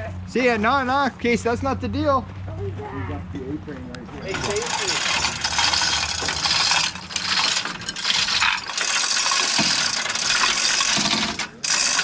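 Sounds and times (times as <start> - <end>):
chain rattling through hoist: 4.3 - 12.0
ratcheting clicks: 4.3 - 12.0.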